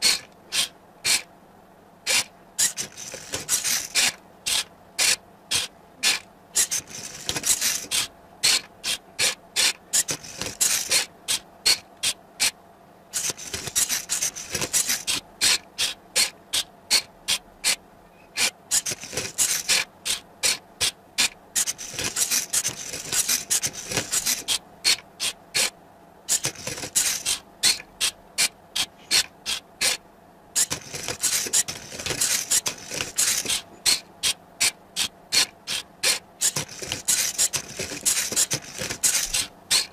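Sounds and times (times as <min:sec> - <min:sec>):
wooden cube rasping and scraping: 0:02.1 - 0:04.2, 0:06.0 - 0:09.4, 0:10.0 - 0:11.1, 0:13.2 - 0:15.6, 0:18.4 - 0:19.9, 0:21.6 - 0:25.0, 0:26.3 - 0:27.8, 0:30.6 - 0:34.0, 0:35.0 - 0:39.9
robot mechanism clicking: 0:02.1 - 0:09.0, 0:09.6 - 0:12.5, 0:13.2 - 0:17.8, 0:18.7 - 0:20.2, 0:21.2 - 0:25.7, 0:26.3 - 0:30.0, 0:30.6 - 0:39.9.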